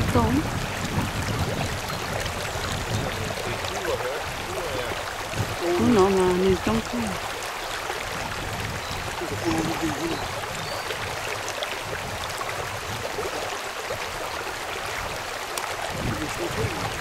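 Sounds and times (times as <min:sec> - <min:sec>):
river water rushing over riffle: 0:00.0 - 0:17.0
faint voice: 0:02.9 - 0:05.0, 0:09.2 - 0:10.2, 0:16.0 - 0:17.0.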